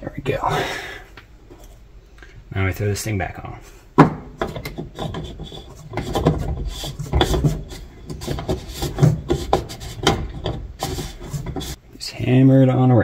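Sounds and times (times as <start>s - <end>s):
metal ring scraping and rubbing: 4.5s - 11.8s.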